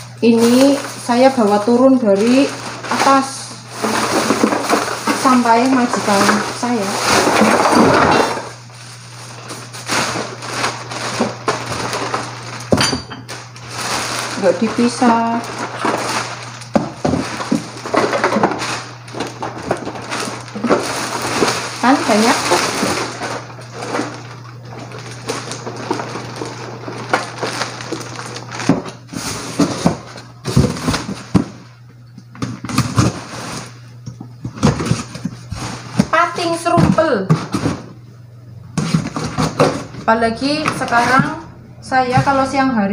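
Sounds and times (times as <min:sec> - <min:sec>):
plastic bag crinkling: 0:00.0 - 0:37.9
steady low hum: 0:00.0 - 0:42.9
items knocking and rattling: 0:00.2 - 0:38.0, 0:38.7 - 0:41.4, 0:42.0 - 0:42.6
cardboard boxes handled and folded: 0:00.3 - 0:12.5, 0:13.6 - 0:31.6.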